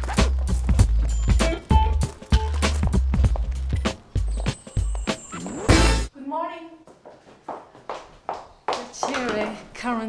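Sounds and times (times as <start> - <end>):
background music with low bass: 0.0 - 6.1.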